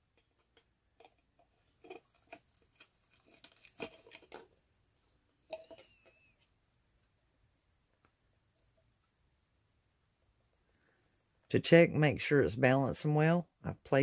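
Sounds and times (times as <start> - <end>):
small clicks and scraping: 0.0 - 7.1.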